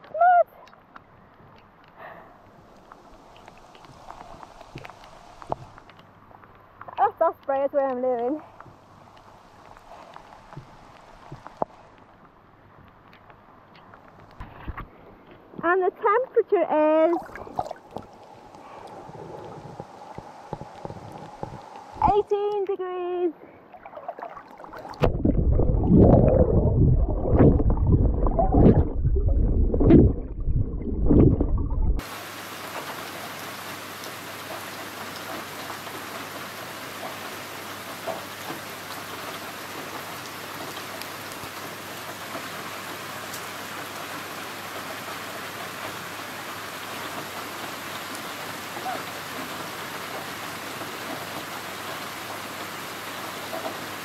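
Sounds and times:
rain hissing on lake: 0:00.0 - 0:28.7, 0:32.0 - 0:54.0
muffled water sloshing: 0:17.1 - 0:22.1, 0:23.5 - 0:32.1.

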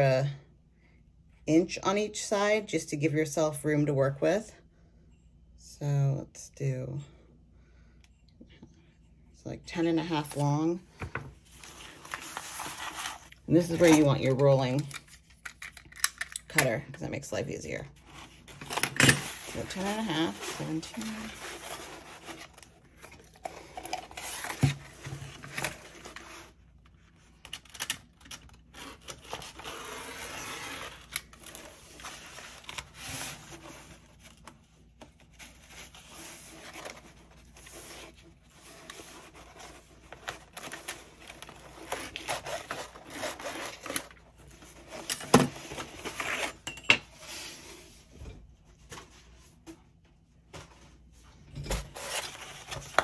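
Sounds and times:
bookcloth rustling and scraping: 0:11.4 - 0:14.1, 0:19.3 - 0:26.6.

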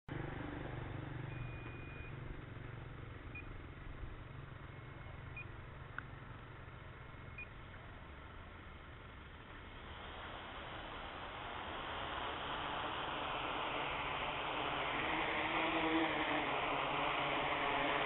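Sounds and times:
low rumble and hiss: 0:00.1 - 0:18.0
short high electronic beeps: 0:01.3 - 0:02.2.

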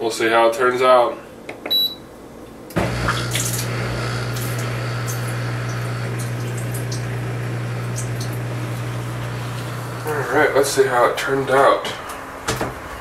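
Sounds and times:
dishwasher motor hum: 0:02.7 - 0:13.0
water spraying inside dishwasher: 0:02.8 - 0:10.8
water ticks: 0:07.9 - 0:08.4.

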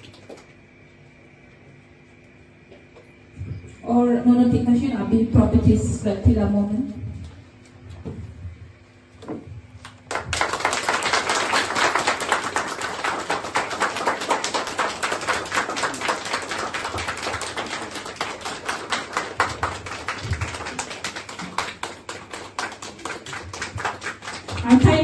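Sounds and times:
audience applauding: 0:09.9 - 0:25.0.

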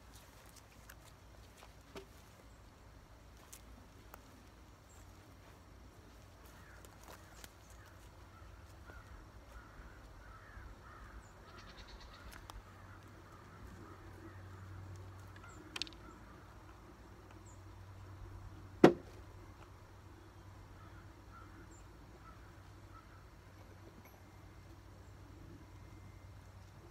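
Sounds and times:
faint bird chirping: 0:00.0 - 0:18.7, 0:19.3 - 0:26.9
hammer striking wood: 0:18.8 - 0:19.1.

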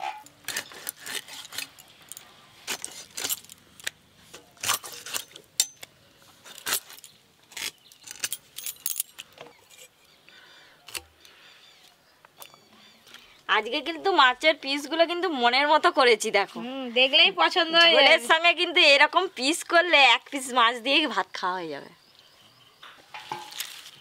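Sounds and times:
light metallic clinks: 0:05.2 - 0:05.9, 0:07.9 - 0:09.9.

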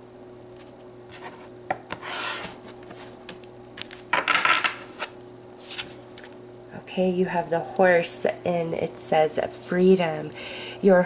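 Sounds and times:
cards sliding and rustling: 0:00.6 - 0:04.1, 0:04.8 - 0:06.1.

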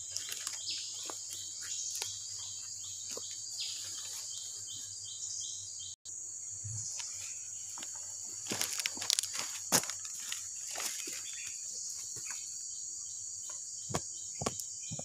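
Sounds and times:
insects shrilling: 0:00.0 - 0:04.4, 0:06.1 - 0:15.0.

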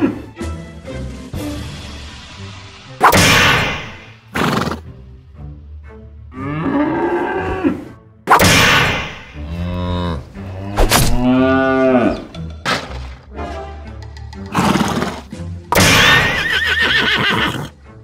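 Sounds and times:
cow mooing: 0:06.3 - 0:07.8, 0:09.4 - 0:12.3.

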